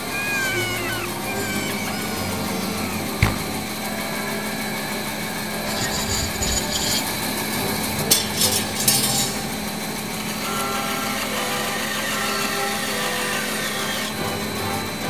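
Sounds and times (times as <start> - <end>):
bandsaw running: 0.0 - 15.0
sharp knocks and clatters: 3.2 - 3.7.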